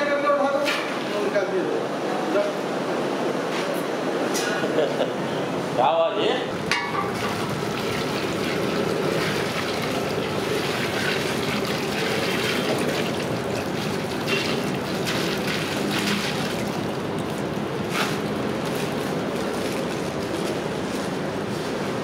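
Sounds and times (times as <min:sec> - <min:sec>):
oil popping and crackling: 0:06.7 - 0:19.9.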